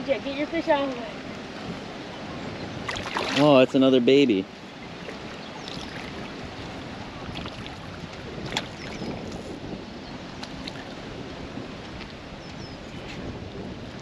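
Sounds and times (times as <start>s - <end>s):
water lapping against concrete: 0.0s - 2.1s, 2.8s - 9.6s, 10.2s - 11.1s
wind noise on microphone: 0.0s - 14.0s
fish splashing: 2.8s - 3.5s.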